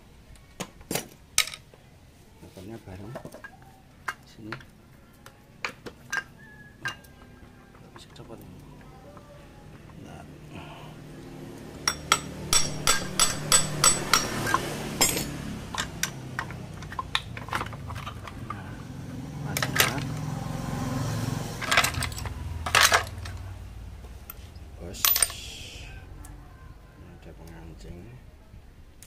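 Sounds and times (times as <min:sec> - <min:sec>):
sharp metal taps: 0:11.8 - 0:17.8
metal engine parts clinking: 0:11.8 - 0:18.9, 0:19.5 - 0:20.1, 0:21.6 - 0:23.4, 0:24.2 - 0:25.6.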